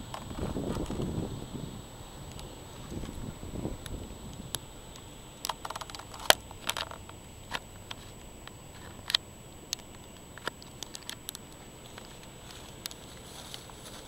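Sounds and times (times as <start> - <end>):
faint steady hiss: 0.0 - 14.0
thin high whine: 0.0 - 14.0
sharp clicks and ticks: 3.8 - 13.6.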